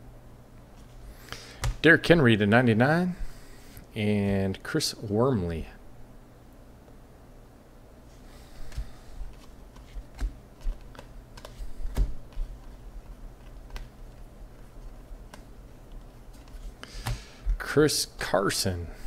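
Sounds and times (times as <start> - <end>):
cards flipping by hand: 8.6 - 17.3.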